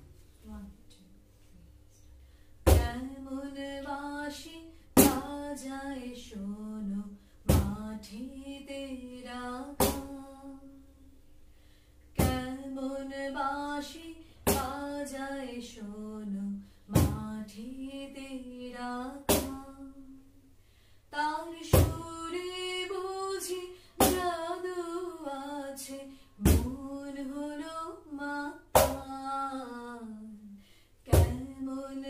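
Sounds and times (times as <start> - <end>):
woman singing unaccompanied: 0.4 - 1.2, 2.6 - 11.1, 12.2 - 20.3, 21.1 - 32.0.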